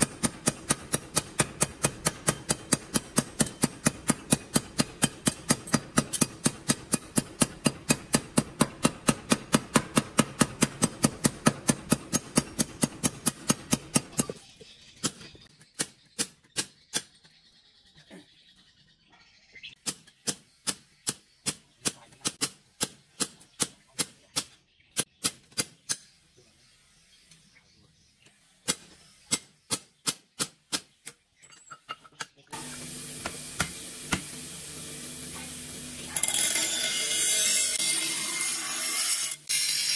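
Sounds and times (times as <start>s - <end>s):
power hammer pounding hot steel: 0.0s - 14.3s, 32.6s - 39.9s
bench grinder humming: 32.6s - 39.9s.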